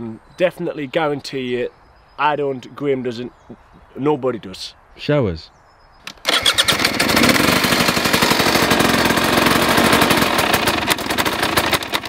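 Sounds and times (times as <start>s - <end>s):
motorcycle engine running: 6.3s - 12.0s.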